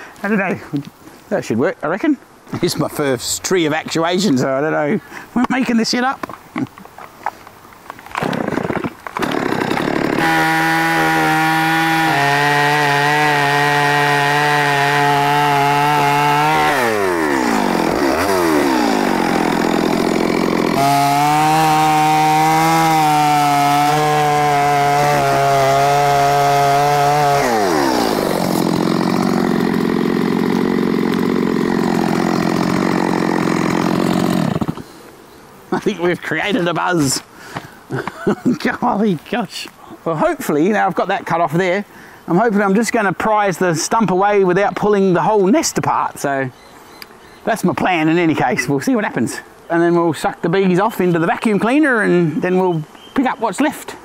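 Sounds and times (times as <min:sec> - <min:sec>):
chainsaw cutting: 0:08.1 - 0:35.1.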